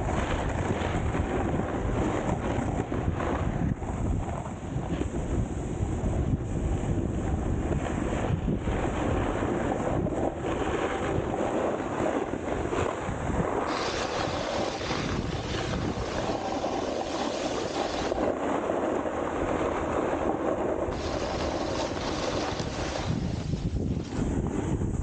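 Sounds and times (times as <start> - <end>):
snowboard sliding over icy snow: 0.0 - 25.0
wind blowing on microphone: 0.0 - 25.0.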